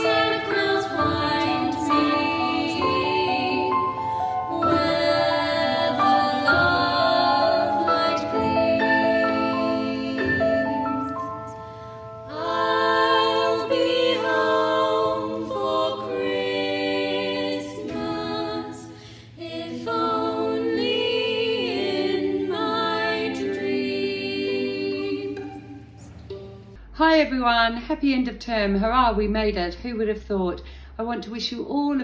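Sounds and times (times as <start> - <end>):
women singing slow song: 0.0 - 11.6, 12.2 - 26.0.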